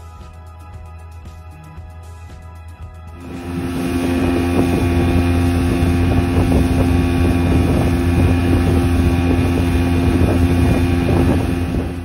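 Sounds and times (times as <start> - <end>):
motorboat engine drone: 0.0 - 12.0
wind buffeting microphone: 3.2 - 12.0.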